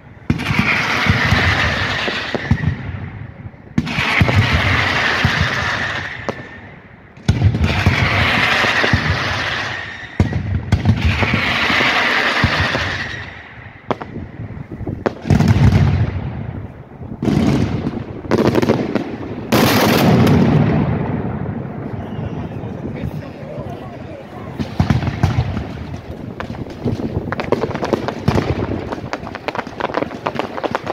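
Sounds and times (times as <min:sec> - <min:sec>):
fireworks crackling: 0:00.0 - 0:30.9
firework shells bursting: 0:24.5 - 0:30.9.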